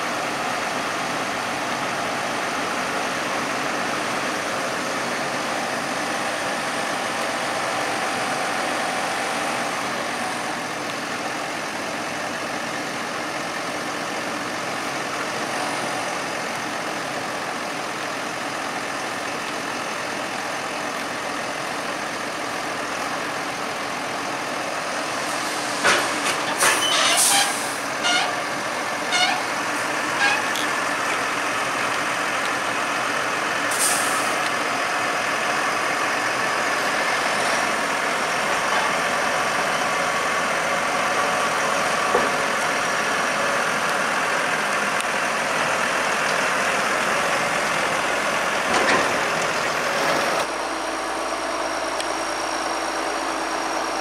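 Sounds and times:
tractor diesel engine running: 0:00.0 - 0:54.0
hydraulic ram raising trailer: 0:24.1 - 0:44.8
short hiss: 0:33.7 - 0:34.4.

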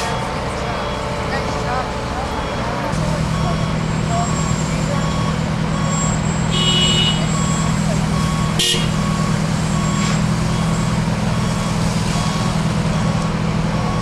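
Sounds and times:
fire engines droning: 0:00.0 - 0:14.0.

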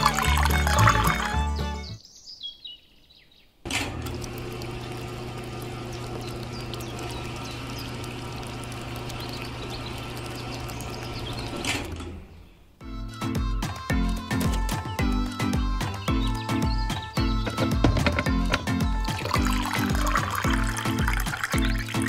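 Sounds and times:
small concrete mixer motor humming: 0:03.8 - 0:11.6.

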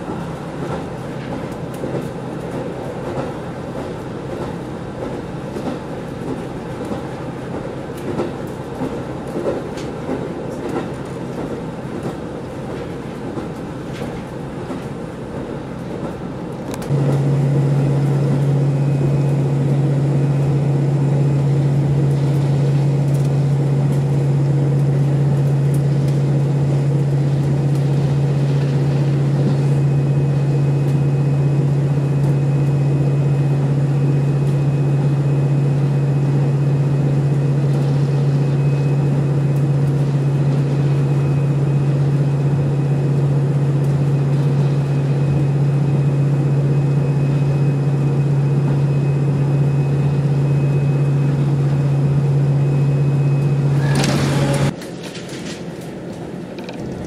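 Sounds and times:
diesel engine drone: 0:00.0 - 0:57.0
train car running noise: 0:00.0 - 0:57.0.

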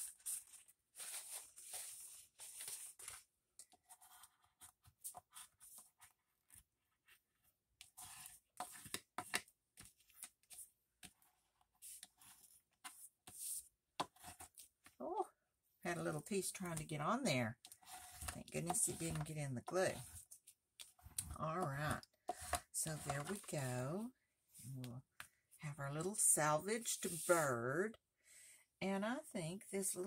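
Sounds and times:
paper napkin rubbing on paper: 0:26.9 - 0:27.5.

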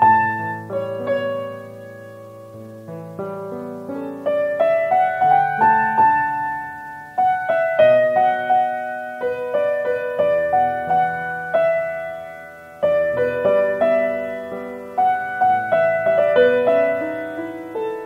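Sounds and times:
slow piano music: 0:00.0 - 0:18.0.

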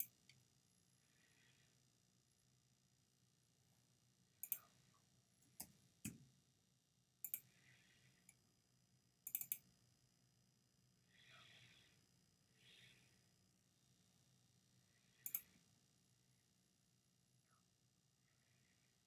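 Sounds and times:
computer mouse clicking: 0:00.0 - 0:00.4, 0:04.4 - 0:04.8, 0:07.2 - 0:07.5, 0:09.3 - 0:09.7, 0:15.2 - 0:15.6.

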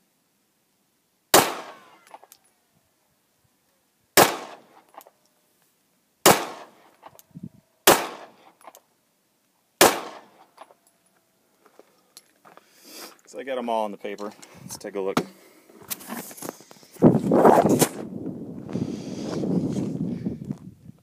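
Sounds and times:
pistol shots with echo: 0:01.3 - 0:02.2, 0:04.2 - 0:04.7, 0:06.2 - 0:06.8, 0:07.8 - 0:08.4, 0:09.8 - 0:10.4.

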